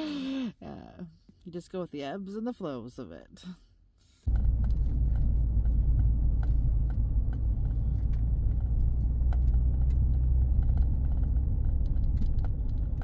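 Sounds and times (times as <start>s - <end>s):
tyre and engine rumble: 4.3s - 13.0s.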